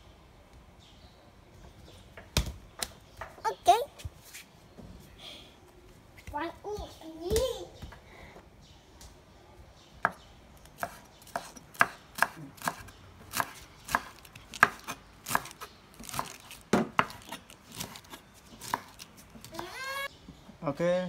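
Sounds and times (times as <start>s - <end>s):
knife chopping on wooden board: 10.0s - 19.0s.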